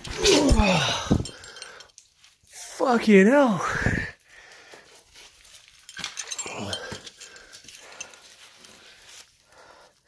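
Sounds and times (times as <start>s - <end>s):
man grunting and breathing hard: 0.2s - 1.8s.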